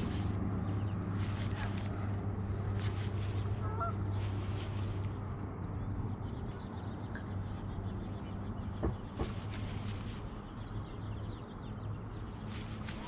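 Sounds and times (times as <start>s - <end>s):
faint bird calls: 0.0s - 5.1s
steady low hum: 0.0s - 13.0s.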